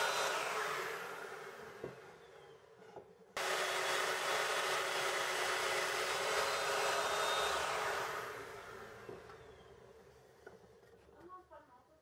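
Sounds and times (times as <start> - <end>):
power joiner motor whine: 0.0 - 2.5, 3.4 - 9.8.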